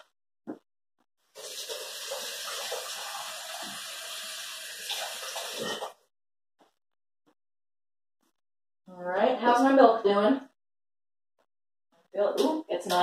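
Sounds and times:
faucet running water into sink: 1.3s - 5.9s.

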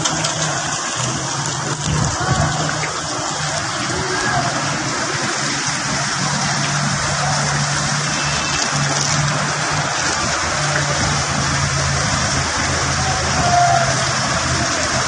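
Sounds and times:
hiss of rain and floodwater: 0.0s - 15.0s.

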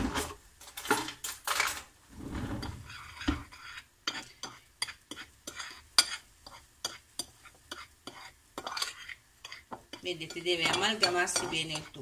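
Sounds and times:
metal spoon scraping ceramic plate: 2.5s - 12.0s.

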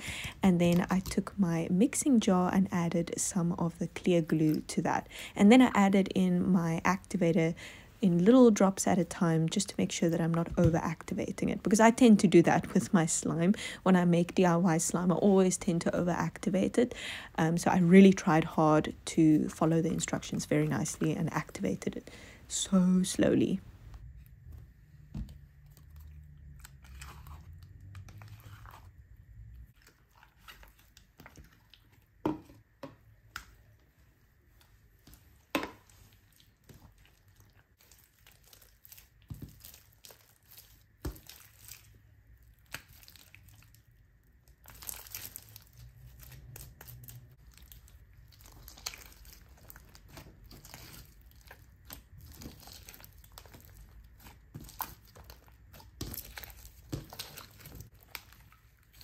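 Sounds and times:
slime stirred with stick: 0.1s - 7.6s, 22.7s - 59.0s
sticky slime crackling and popping: 35.9s - 59.0s.

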